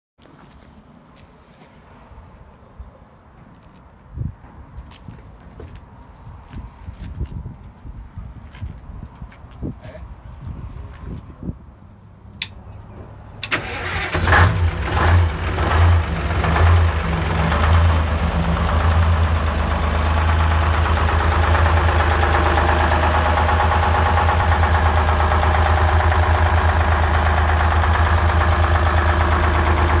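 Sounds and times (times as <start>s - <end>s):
diesel engine starting and idling: 13.3s - 30.0s.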